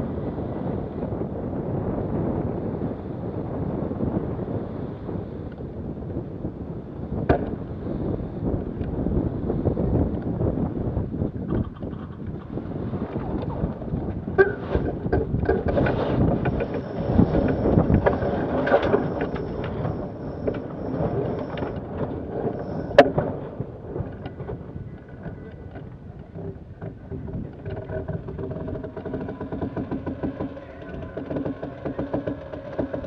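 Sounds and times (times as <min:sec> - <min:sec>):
wind buffeting microphone: 0:00.0 - 0:33.0
water rushing along hull: 0:12.0 - 0:33.0
scattered clicks and knocks: 0:14.4 - 0:33.0.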